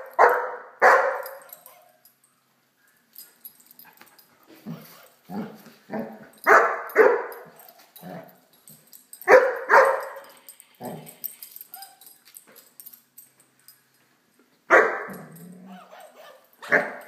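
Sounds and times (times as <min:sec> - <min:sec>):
puppy barking: 0:00.0 - 0:02.0, 0:04.8 - 0:08.3, 0:09.2 - 0:11.0, 0:14.7 - 0:17.0.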